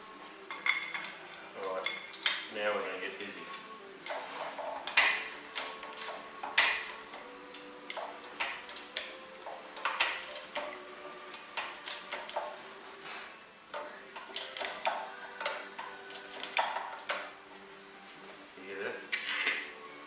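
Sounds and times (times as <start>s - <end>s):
hydraulic press clicking and knocking: 4.7s - 12.6s, 13.7s - 17.3s.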